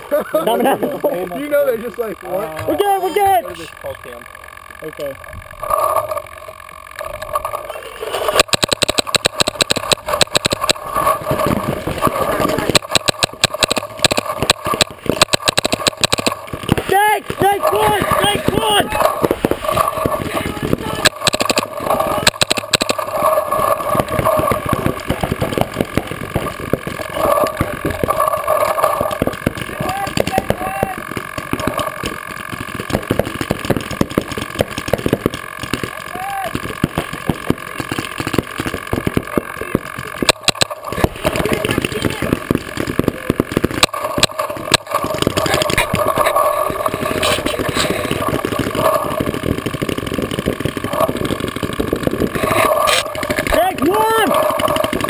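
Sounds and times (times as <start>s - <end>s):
paintball markers firing: 8.2s - 55.0s
people shouting: 16.8s - 19.4s, 29.7s - 31.0s, 36.0s - 36.6s, 53.5s - 54.5s.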